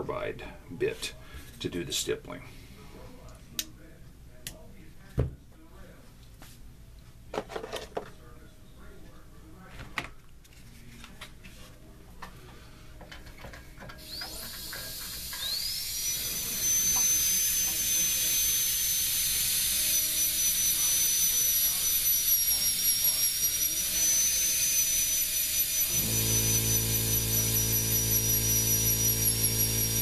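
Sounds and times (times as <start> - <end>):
rotary carving tool whining: 14.0 - 30.0.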